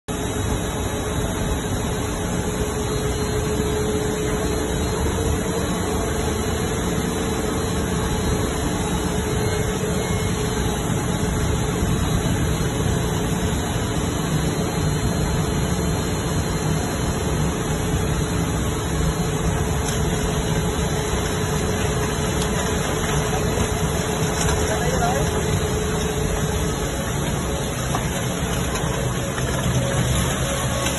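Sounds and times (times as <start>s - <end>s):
plastic shredder running: 17.7s - 30.9s.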